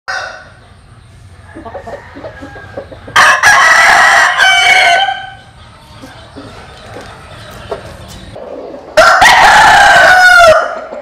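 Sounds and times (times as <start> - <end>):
rooster crowing: 0.1 - 0.6, 1.4 - 5.4, 9.0 - 11.0.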